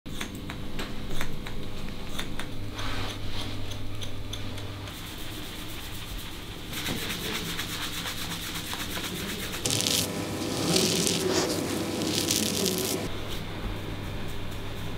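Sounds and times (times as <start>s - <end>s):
fingers rubbing lathered scalp: 5.5s - 13.1s.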